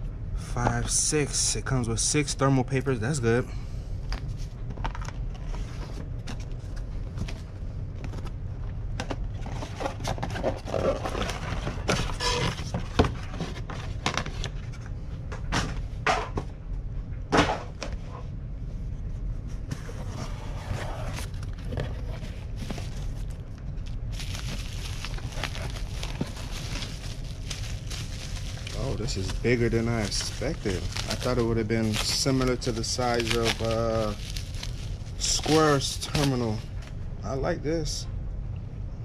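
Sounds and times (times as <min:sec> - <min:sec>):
steady low hum: 0:00.0 - 0:39.0
cardboard rustling and scraping: 0:04.3 - 0:08.3, 0:09.2 - 0:14.9, 0:19.5 - 0:36.7.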